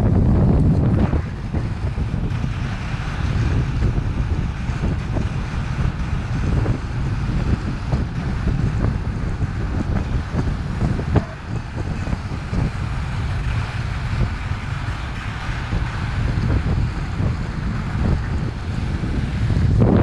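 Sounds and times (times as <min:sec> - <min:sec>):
kite skis hissing across snow: 0:00.0 - 0:20.0
wind buffeting microphone: 0:00.0 - 0:20.0.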